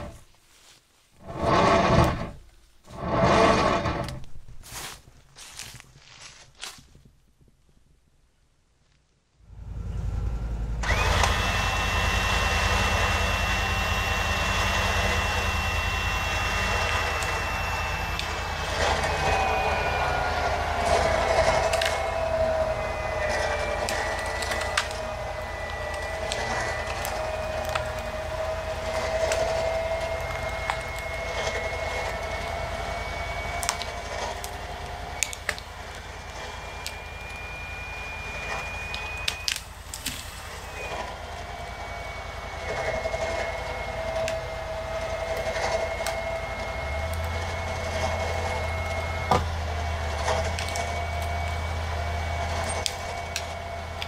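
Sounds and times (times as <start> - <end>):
electric winch motor whining: 1.2 - 4.3, 9.7 - 54.0
branches cracking and snapping: 4.1 - 7.1, 10.8 - 12.2, 12.8 - 41.1, 42.6 - 54.0.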